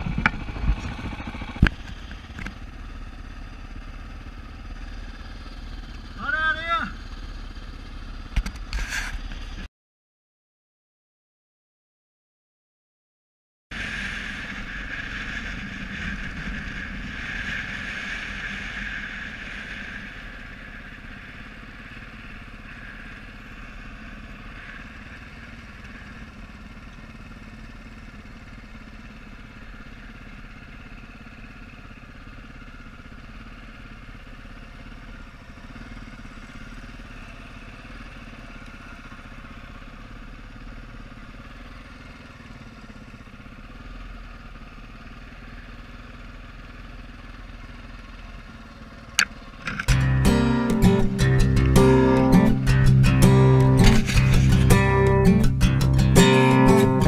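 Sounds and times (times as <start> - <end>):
dirt bike engine running: 0.0 - 9.7, 13.8 - 57.0.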